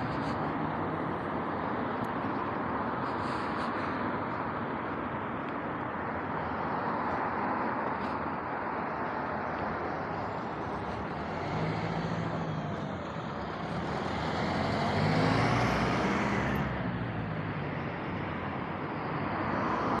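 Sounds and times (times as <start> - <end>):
tyres hissing on road: 0.0 - 20.0
truck engine passing: 10.0 - 17.9.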